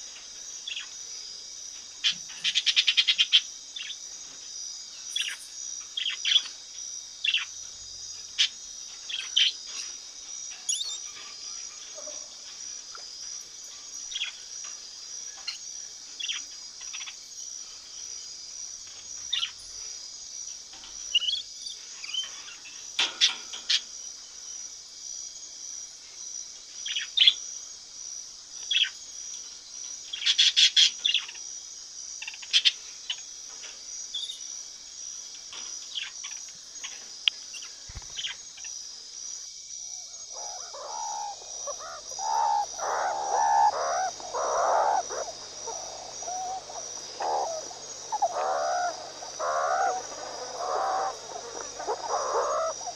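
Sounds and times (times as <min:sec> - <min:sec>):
rough animal chattering: 0:40.3 - 0:52.9
parrot screeching: 0:40.5 - 0:52.9.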